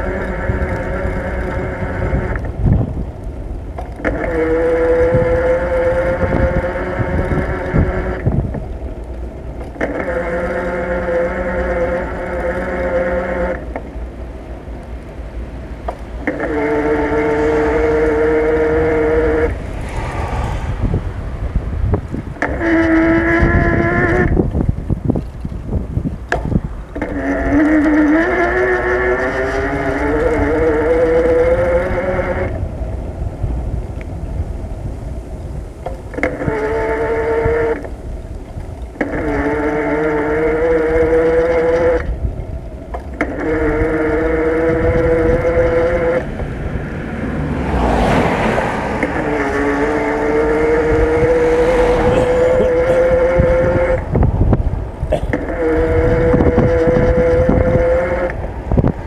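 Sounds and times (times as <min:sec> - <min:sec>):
bike whine: 0:00.0 - 0:59.0
vehicle passing: 0:15.2 - 0:24.4, 0:43.4 - 0:59.0.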